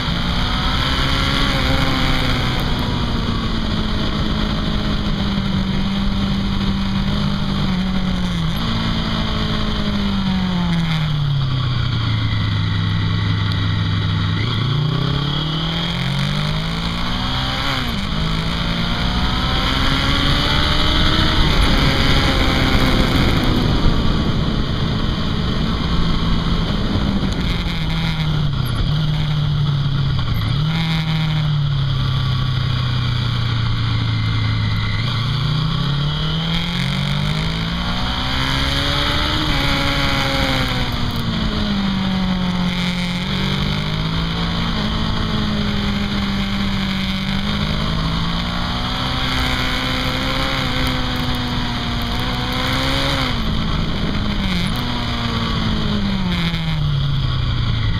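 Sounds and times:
wind rush: 0.0 - 30.6, 49.8 - 57.9
motorcycle engine: 0.0 - 57.9.

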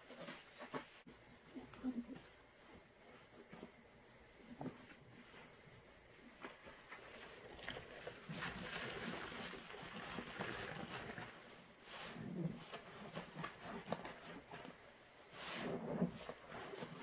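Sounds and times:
wet sponges squelching: 4.5 - 17.0
soapy liquid dripping: 6.9 - 11.5.

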